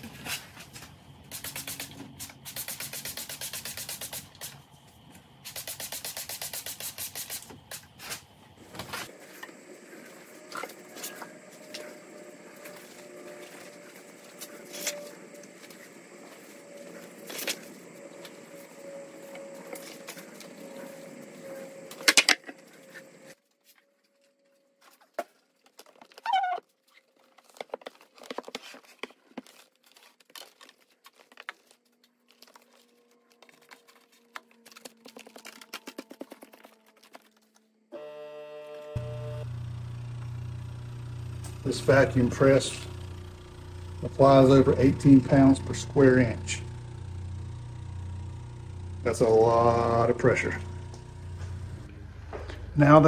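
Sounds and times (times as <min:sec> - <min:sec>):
spray bottle spritzing: 0:01.3 - 0:04.6, 0:05.4 - 0:08.2
paper sheets rustling: 0:24.8 - 0:37.7
plastic sheeting crinkling: 0:25.5 - 0:37.7
low steady hum: 0:38.0 - 0:53.0.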